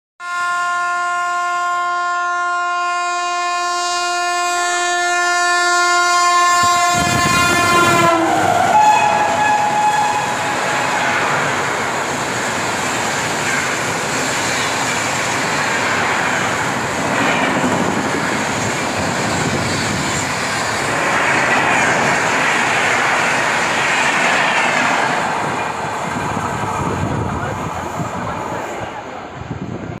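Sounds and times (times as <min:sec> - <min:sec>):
train horn chord: 0:00.2 - 0:11.1
train wheels rushing on rails: 0:06.3 - 0:30.0.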